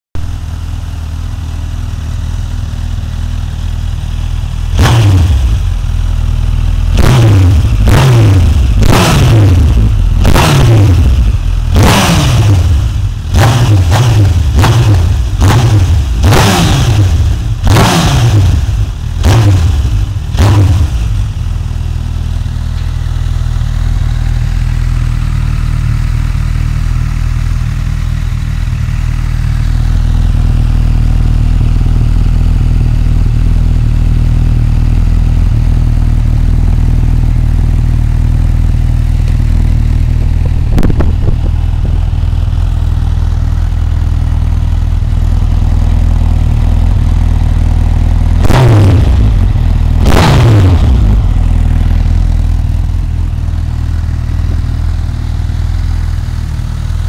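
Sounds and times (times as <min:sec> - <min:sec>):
motorcycle engine idling: 0:00.2 - 0:57.0
motorcycle engine revving: 0:00.2 - 0:57.0.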